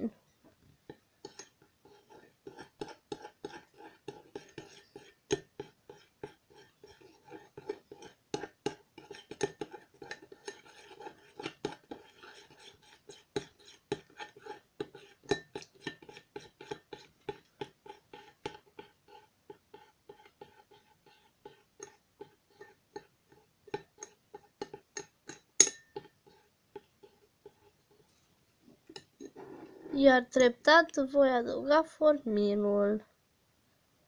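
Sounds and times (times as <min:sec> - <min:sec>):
spoon clinking in glass bowl: 0:15.2 - 0:16.2, 0:23.8 - 0:26.1.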